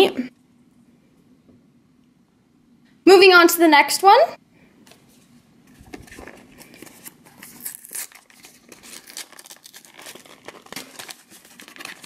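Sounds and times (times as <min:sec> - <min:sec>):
cardboard box being opened: 0:05.7 - 0:12.0.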